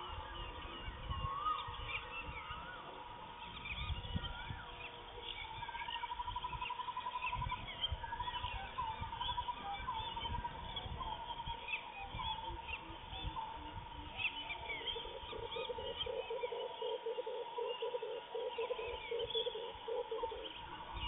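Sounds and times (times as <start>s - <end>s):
birds chirping: 0.0s - 21.0s.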